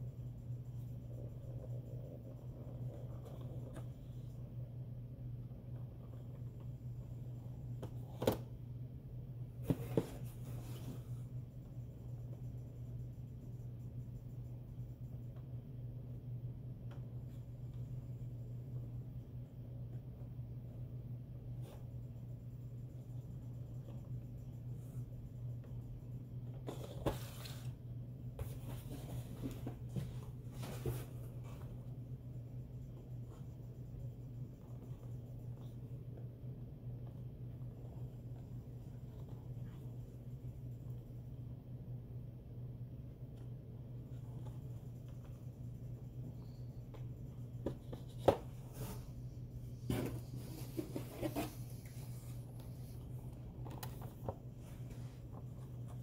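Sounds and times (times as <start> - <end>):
steady low hum: 0.0 - 56.0
cardboard boxes tapping and rubbing: 9.6 - 10.9
cardboard boxes scraping and rustling: 26.7 - 27.8, 28.4 - 31.7, 49.9 - 52.4.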